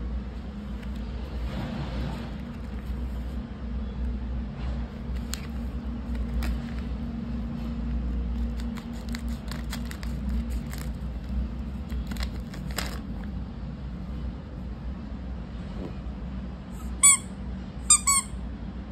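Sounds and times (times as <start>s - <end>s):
steady low hum: 0.0s - 18.9s
plastic bag crinkling: 5.2s - 7.1s, 7.9s - 13.3s.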